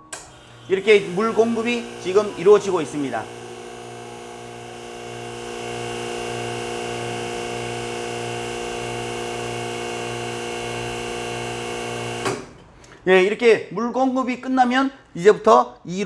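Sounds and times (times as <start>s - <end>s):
espresso machine pump humming: 0.2s - 12.3s.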